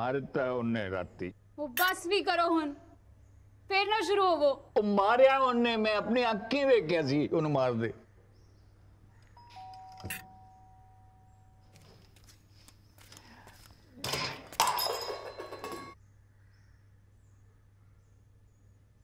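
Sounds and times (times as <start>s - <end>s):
two-note doorbell chime: 9.4s - 11.6s
clattering: 14.0s - 16.0s.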